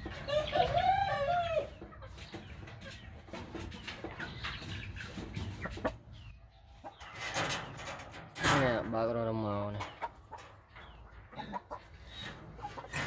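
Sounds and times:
chicken drawn-out call: 0:00.0 - 0:02.1
chickens clucking: 0:00.0 - 0:13.0.

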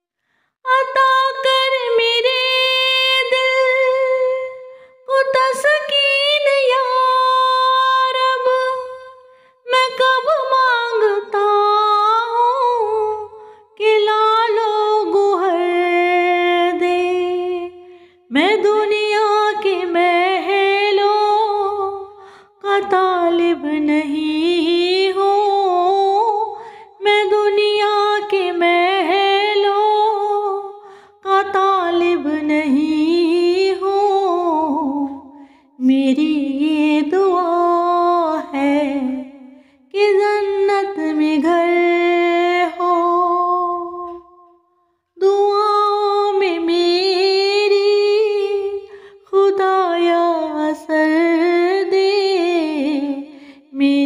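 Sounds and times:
short breaths: 0:00.2 - 0:00.6, 0:30.8 - 0:31.2
woman singing slow melody: 0:00.7 - 0:44.5, 0:45.2 - 0:54.0.

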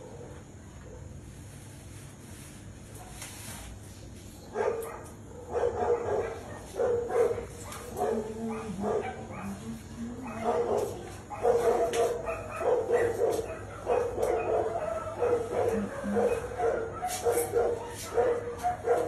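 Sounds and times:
dog barking and yipping: 0:04.5 - 0:19.0.

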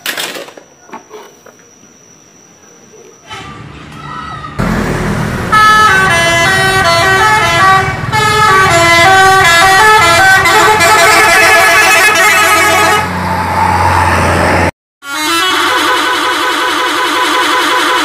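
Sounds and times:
musical bus horns: 0:04.5 - 0:13.4, 0:15.0 - 0:18.0.

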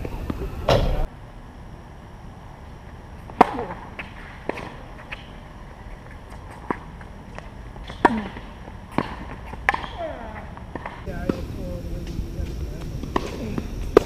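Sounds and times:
tennis ball struck: 0:03.3 - 0:05.3, 0:07.4 - 0:14.0.

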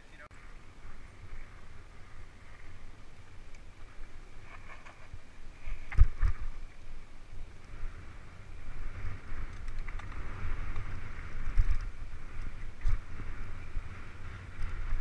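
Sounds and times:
bike tyres rolling over dirt: 0:00.2 - 0:15.0
wind buffeting microphone: 0:00.3 - 0:15.0.

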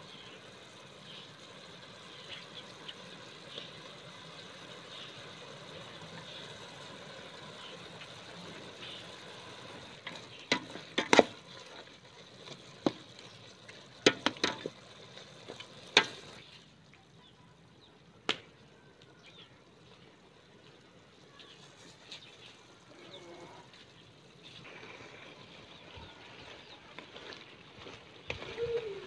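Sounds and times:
cooking pot sizzling: 0:00.0 - 0:29.0.

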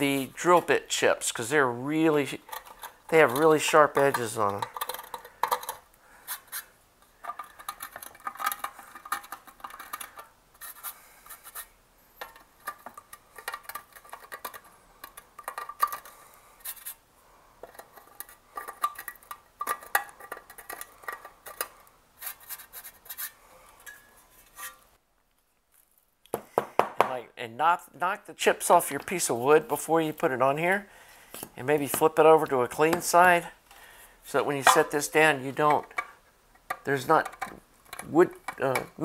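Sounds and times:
metal chips clinking: 0:34.5 - 0:36.1.

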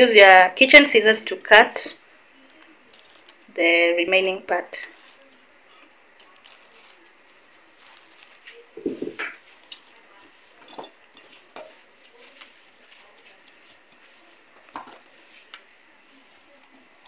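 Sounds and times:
plastic film rustling: 0:02.4 - 0:03.6, 0:04.7 - 0:17.0.

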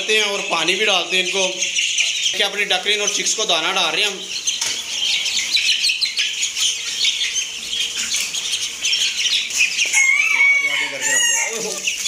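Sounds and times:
ducklings and chicks peeping: 0:00.0 - 0:12.0
chicken drawn-out call: 0:04.3 - 0:12.0.

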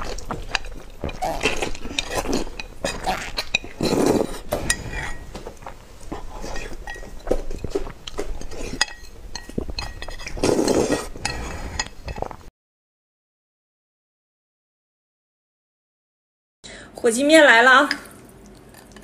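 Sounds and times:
chopsticks clinking against bowl: 0:00.0 - 0:12.4
noodles slurped and chewed: 0:00.0 - 0:12.5, 0:18.1 - 0:19.0.

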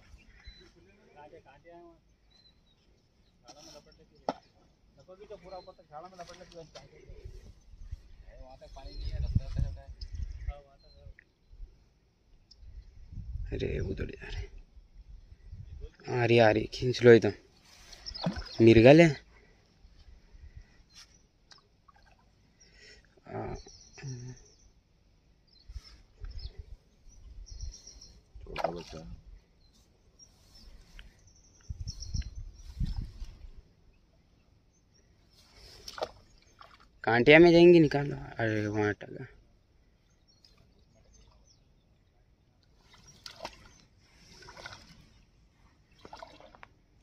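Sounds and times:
birds chirping: 0:00.0 - 0:46.5
river water splashing: 0:17.6 - 0:19.1, 0:35.4 - 0:37.0, 0:42.7 - 0:46.8
fish splashing at water surface: 0:18.0 - 0:18.6, 0:42.9 - 0:45.0, 0:46.0 - 0:46.7.

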